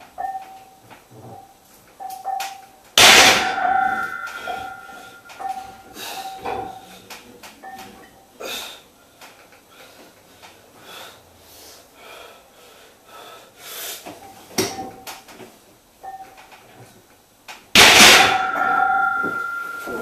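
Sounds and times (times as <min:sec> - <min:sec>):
barbell clanging on metal rack: 0:03.0 - 0:06.8, 0:17.8 - 0:20.0.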